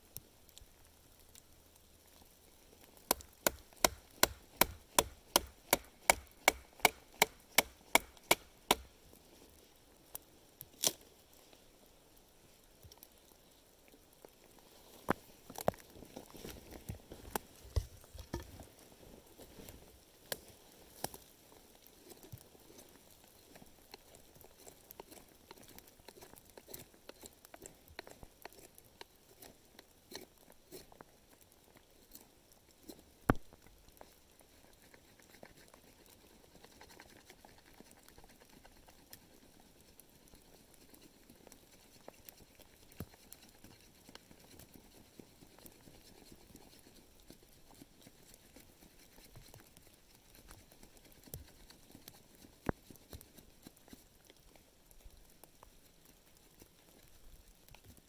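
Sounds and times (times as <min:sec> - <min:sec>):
knife carving wood: 0:02.9 - 0:09.0, 0:22.1 - 0:31.0, 0:34.6 - 0:54.5.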